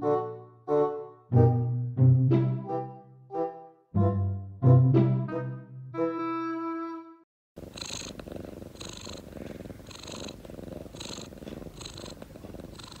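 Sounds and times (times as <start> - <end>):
cat purring: 7.6 - 13.0.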